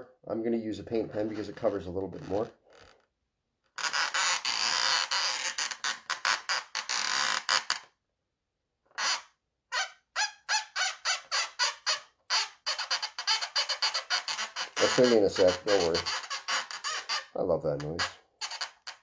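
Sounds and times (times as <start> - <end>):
pen squeaking on balloon: 0.9 - 3.0, 3.7 - 7.9, 8.9 - 19.0.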